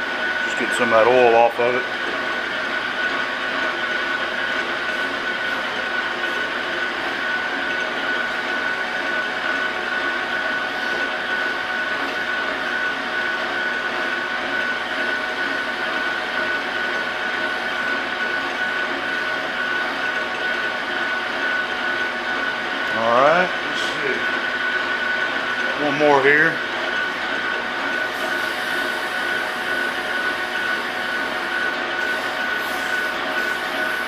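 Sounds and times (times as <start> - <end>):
metal lathe whining: 0.0 - 34.0
emery cloth polishing steel: 28.1 - 34.0.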